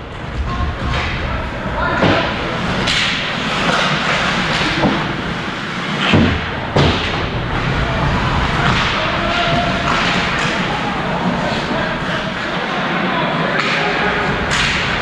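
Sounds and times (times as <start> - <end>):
hockey sticks and puck knocking: 2.0 - 5.2, 8.4 - 12.5, 13.6 - 15.0.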